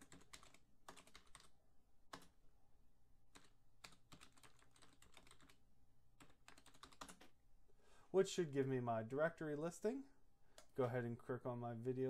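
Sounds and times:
faint computer keyboard typing: 0.0s - 1.5s, 2.1s - 2.4s, 3.3s - 5.6s, 6.2s - 7.4s, 10.5s - 10.9s.

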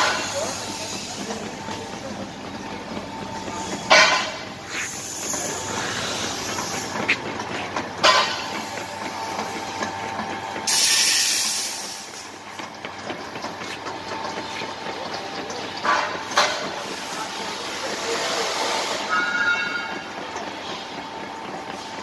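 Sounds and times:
belt conveyor rattling rumble: 0.0s - 22.0s
loud burst of hiss: 10.7s - 12.2s.

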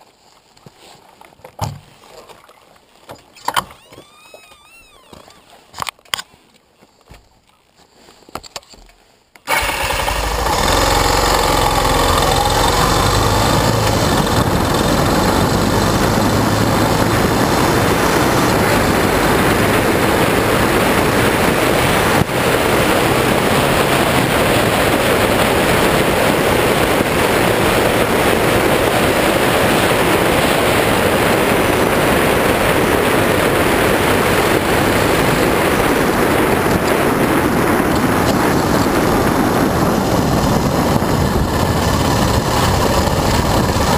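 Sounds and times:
wind noise on microphone: 3.3s - 6.2s, 9.5s - 43.9s
motorcycle engine running: 9.5s - 43.9s.

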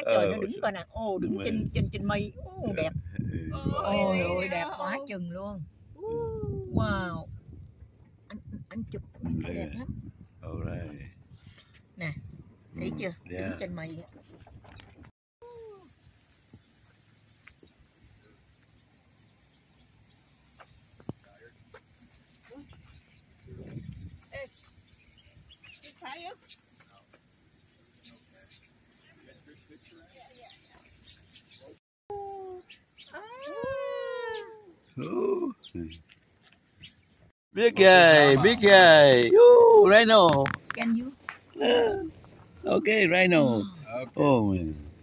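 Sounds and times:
insects chirping: 15.5s - 31.7s
nasal wailing bird call: 32.1s - 35.9s.

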